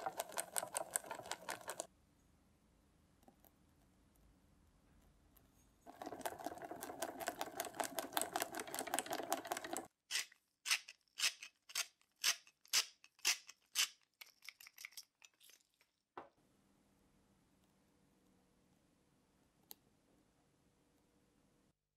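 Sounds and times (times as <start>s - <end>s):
pepper mill grinding: 0.0s - 1.9s, 5.9s - 15.8s
whisk scraping saucepan: 0.0s - 1.9s.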